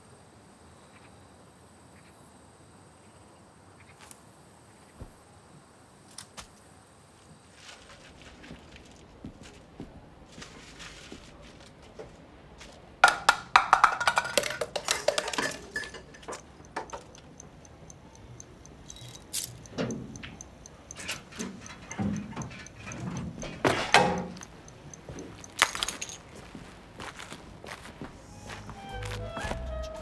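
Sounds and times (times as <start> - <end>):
clattering and knocking: 13.0 - 17.1, 21.4 - 24.5
fast high ticking: 14.1 - 26.1.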